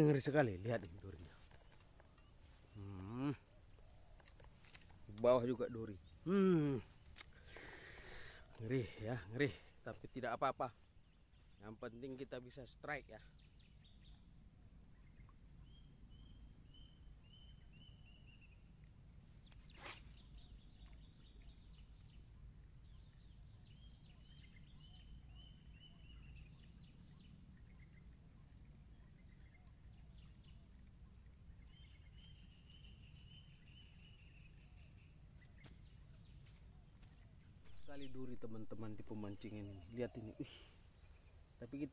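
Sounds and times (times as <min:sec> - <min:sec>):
insects droning: 0:00.0 - 0:41.9
bird chirping: 0:13.3 - 0:14.3, 0:19.4 - 0:36.4, 0:37.1 - 0:41.9.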